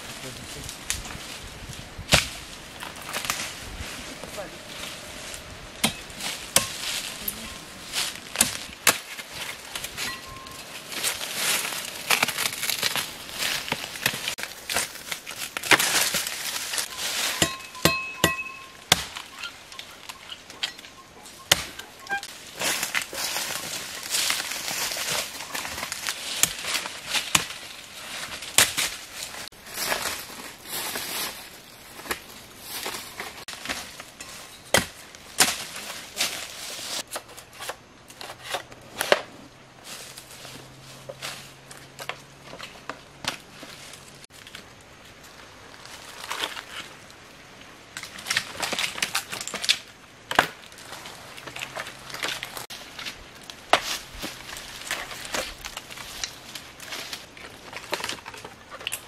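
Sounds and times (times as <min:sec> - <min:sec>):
dry stems crackling and rustling: 0:00.0 - 0:59.0
machete chopping: 0:05.8 - 0:07.0, 0:17.3 - 0:19.3.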